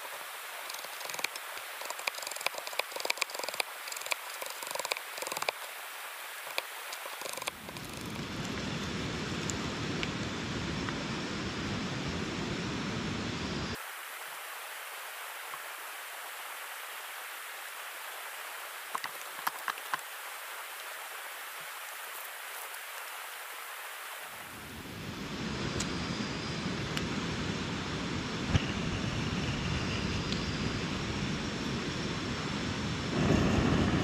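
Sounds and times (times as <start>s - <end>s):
rain hiss: 0.0s - 34.0s
sharp clicks: 0.6s - 5.6s, 6.5s - 8.3s
deep rumble: 32.9s - 34.0s.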